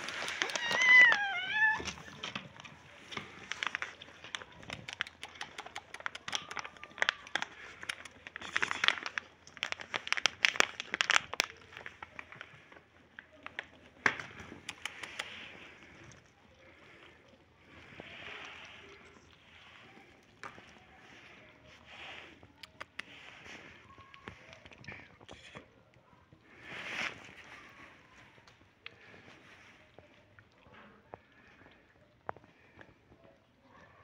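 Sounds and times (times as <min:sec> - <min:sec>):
plastic milk packet crinkling: 0:00.0 - 0:17.0, 0:17.7 - 0:21.8
kittens lapping milk: 0:00.0 - 0:34.0
kitten meowing: 0:00.3 - 0:02.2.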